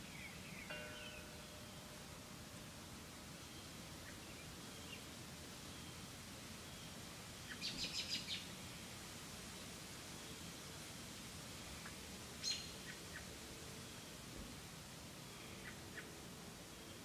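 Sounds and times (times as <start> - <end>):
small bird high chirps: 7.5 - 8.5, 12.4 - 13.2.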